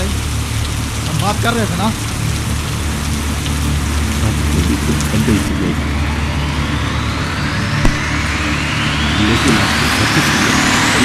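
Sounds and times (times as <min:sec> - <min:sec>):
rain falling: 0:00.0 - 0:05.9
low steady drone: 0:00.0 - 0:11.0
rising whoosh: 0:05.7 - 0:09.6
sharp click: 0:07.8 - 0:08.3.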